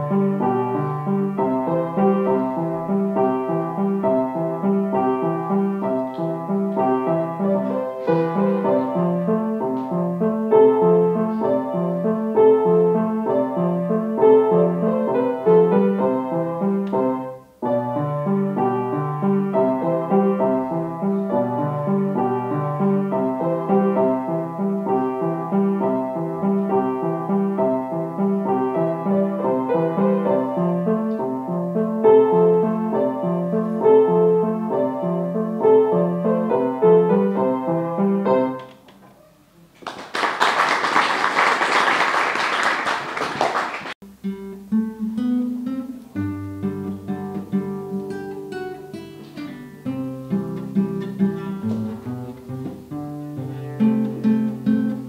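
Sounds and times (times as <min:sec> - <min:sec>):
classical guitar playing: 0:00.0 - 0:38.7, 0:44.0 - 0:55.0
grand piano solo: 0:00.0 - 0:39.3, 0:44.6 - 0:55.0
applause: 0:39.8 - 0:44.0.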